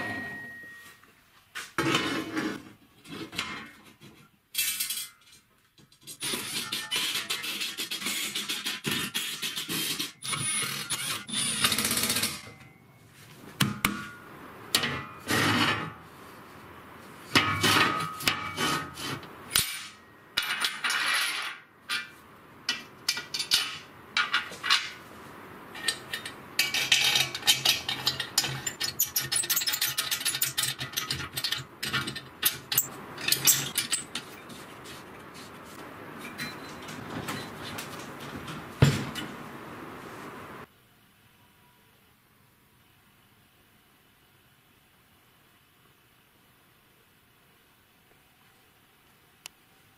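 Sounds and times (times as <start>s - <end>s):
steel tube scraping across plate: 1.8s - 3.4s, 14.8s - 16.0s, 17.3s - 19.9s.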